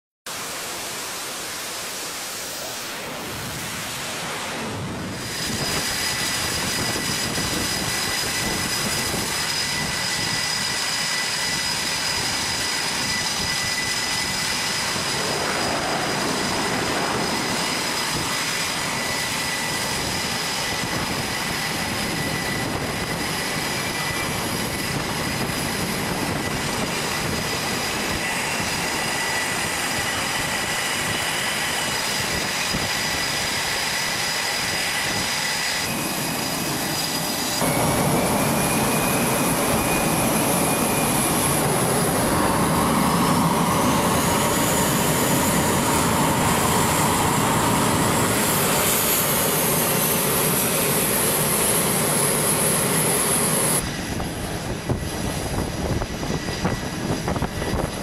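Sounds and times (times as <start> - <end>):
jet engine whine: 0.3 - 58.0
jet exhaust rush: 0.3 - 58.0.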